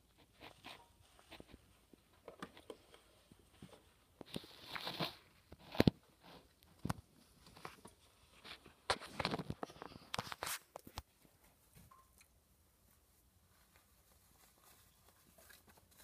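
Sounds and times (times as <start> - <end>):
small crunches and rustles: 0.0 - 11.6, 12.9 - 16.0
scraping rustle: 12.9 - 16.0.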